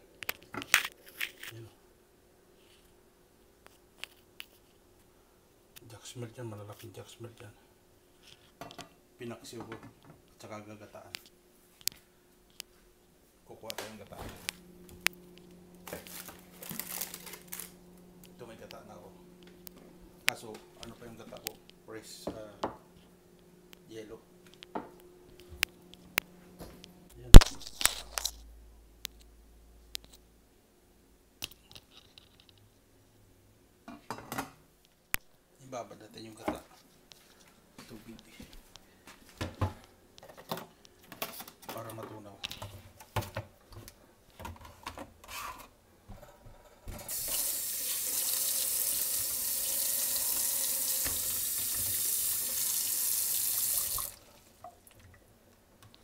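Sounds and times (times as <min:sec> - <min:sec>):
tap running water into container: 0:47.1 - 0:55.1.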